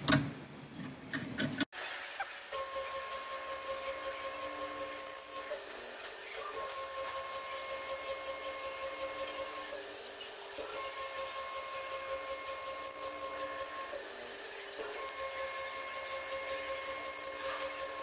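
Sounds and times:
drill whine of pitched tones: 2.2s - 18.0s.

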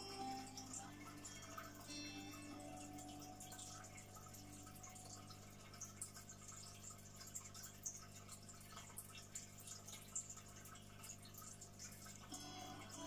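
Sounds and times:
dripping ticks: 0.0s - 13.0s.

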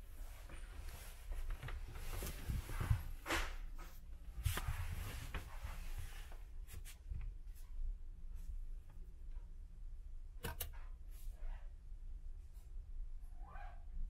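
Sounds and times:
rustling and handling noises: 0.0s - 9.6s.

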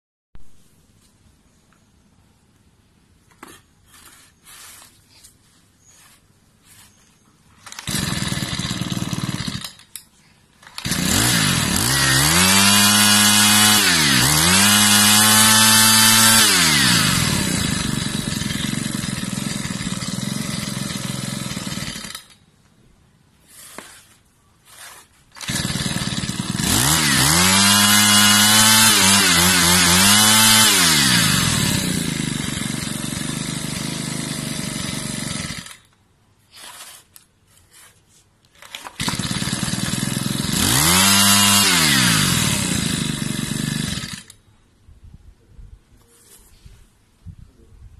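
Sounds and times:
brush cutter engine revving: 7.6s - 9.9s, 10.6s - 22.4s, 25.4s - 35.8s, 38.6s - 44.4s.

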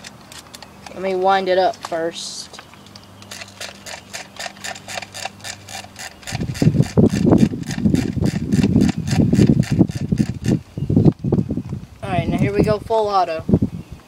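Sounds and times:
ratcheting clicks of winding wheel: 3.2s - 10.6s.

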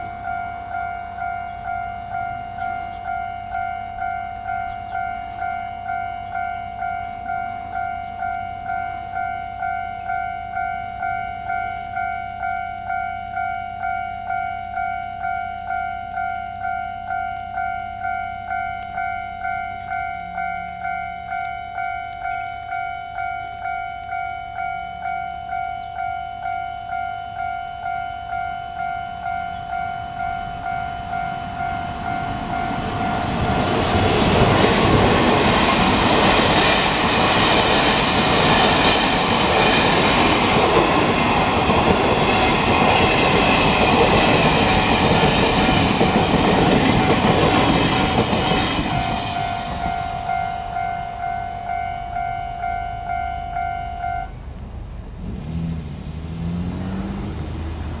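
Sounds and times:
passing train wheels: 0.0s - 58.0s
level crossing bell dinging: 0.2s - 33.4s, 48.5s - 54.4s
car engine revving: 54.5s - 58.0s.

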